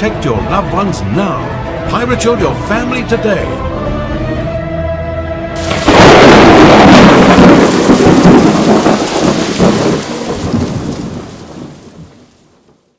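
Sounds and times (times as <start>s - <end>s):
thunder crash with rumble: 5.6s - 12.8s.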